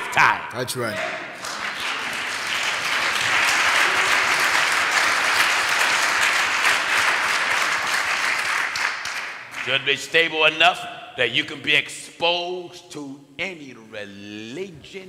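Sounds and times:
congregation applauding: 0.8 - 10.4.

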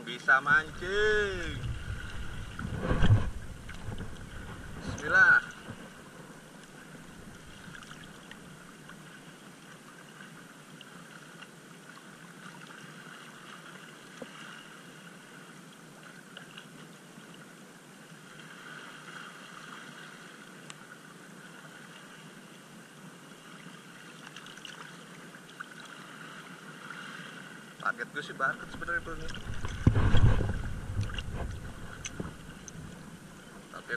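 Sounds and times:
sea water lapping: 0.0 - 17.4, 18.0 - 33.9.

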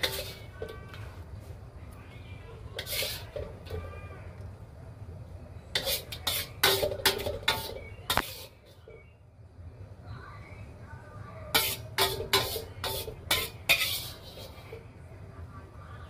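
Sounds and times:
metal spoon scraping a wok: 0.0 - 1.3, 2.5 - 3.9, 5.7 - 9.1, 11.5 - 14.9.

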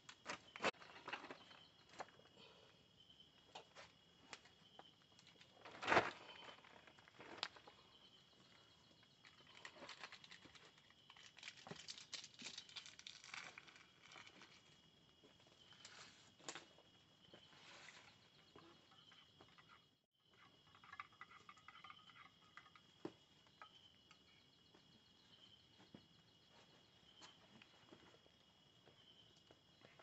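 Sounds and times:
night insects droning: 0.0 - 30.0.

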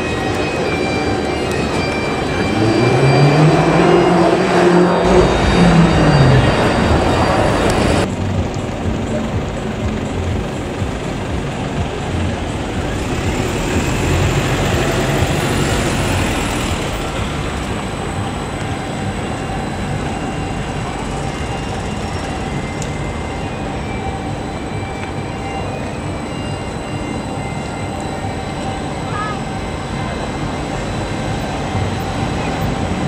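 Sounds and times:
city traffic noise: 0.0 - 33.0
tram wheels rumbling on rails: 0.0 - 33.0.

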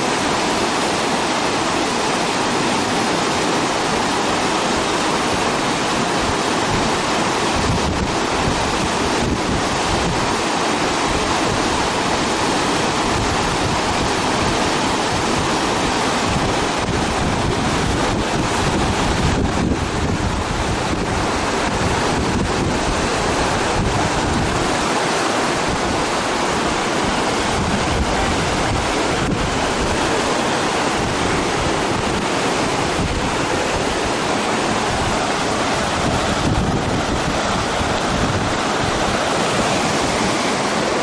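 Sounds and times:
whitewater rapids rushing: 0.0 - 41.0
wind buffeting microphone: 4.8 - 41.0.

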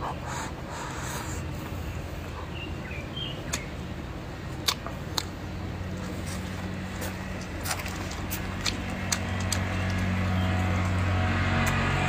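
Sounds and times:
low hum: 0.0 - 12.0
chewing: 4.6 - 11.0.

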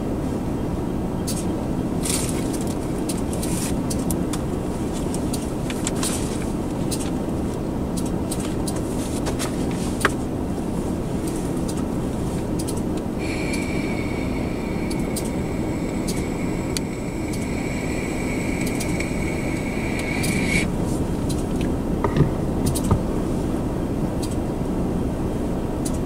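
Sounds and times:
diesel locomotive idling: 10.4 - 25.4
steady high-pitched tone: 13.2 - 20.9.

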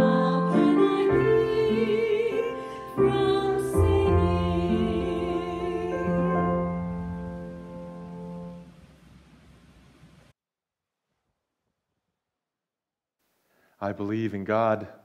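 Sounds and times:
person singing a hymn: 0.0 - 7.2.

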